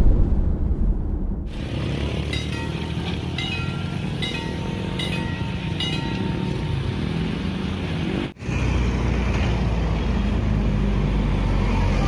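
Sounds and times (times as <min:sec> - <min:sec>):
road traffic rumble: 0:01.4 - 0:12.0
level crossing warning bell: 0:02.2 - 0:07.0.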